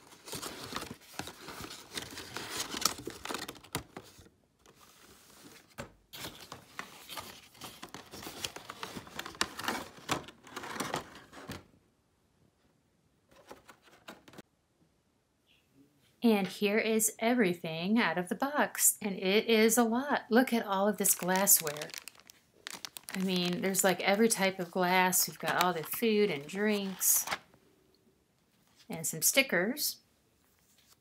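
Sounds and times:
plastic packaging crinkling: 0:00.0 - 0:05.1, 0:21.0 - 0:27.4.

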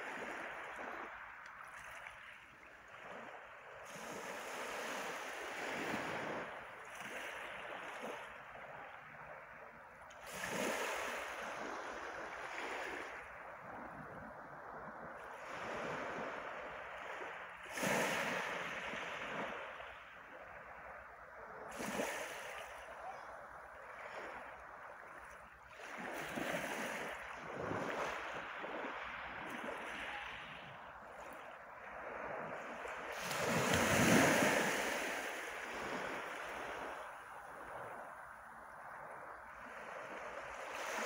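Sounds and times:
waves washing up pebble beach: 0:25.7 - 0:37.6.

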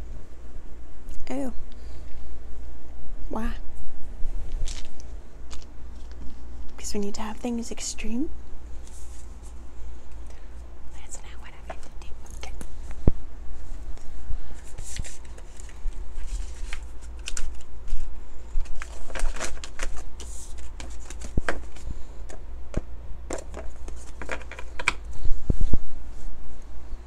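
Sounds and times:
cards shuffling on a wooden table: 0:04.5 - 0:06.4, 0:13.9 - 0:25.0.

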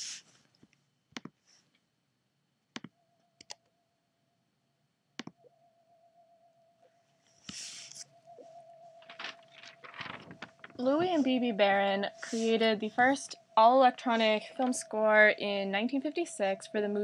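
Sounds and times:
computer mouse clicks: 0:02.8 - 0:03.6
faint high tone: 0:07.6 - 0:17.0.

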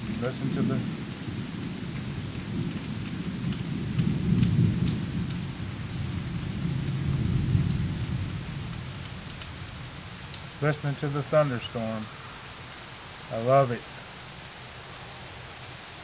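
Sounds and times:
rolling thunder: 0:00.0 - 0:10.0
steady rain: 0:00.0 - 0:16.0.

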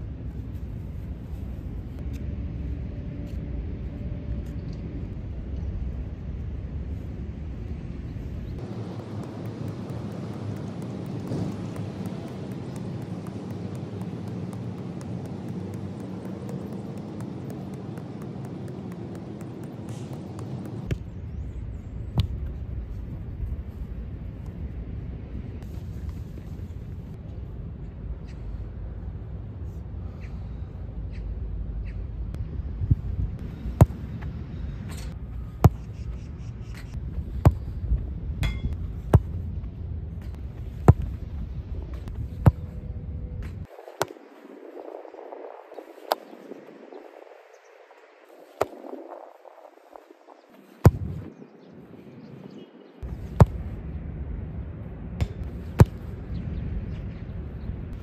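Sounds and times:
low wind rumble: 0:00.0 - 0:58.0
boot kicking football: 0:08.6 - 0:21.1, 0:34.9 - 0:35.9, 0:38.4 - 0:39.4, 0:40.2 - 0:41.2, 0:50.8 - 0:51.3, 0:53.0 - 0:53.7, 0:55.2 - 0:56.2.

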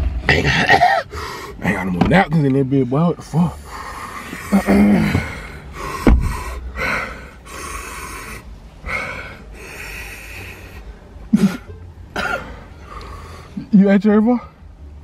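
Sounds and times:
person breathing hard and sniffing: 0:01.0 - 0:01.6, 0:03.6 - 0:11.0, 0:12.4 - 0:13.6
person grunting: 0:04.5 - 0:05.4.

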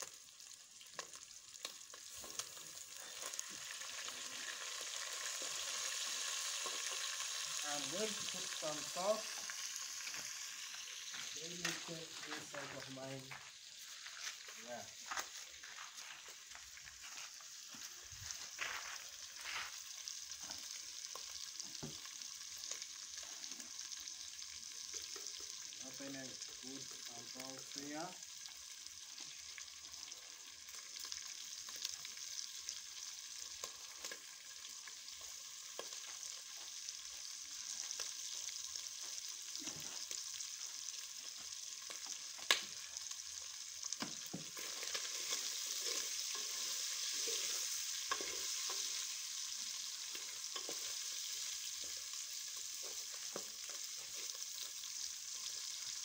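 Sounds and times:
meat sizzling in oil: 0:00.0 - 0:56.0
stirring scrapes and clacks: 0:44.6 - 0:48.8, 0:50.1 - 0:51.0.

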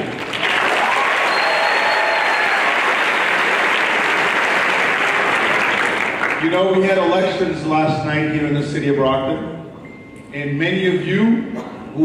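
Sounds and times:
audience applauding: 0:00.0 - 0:06.8.

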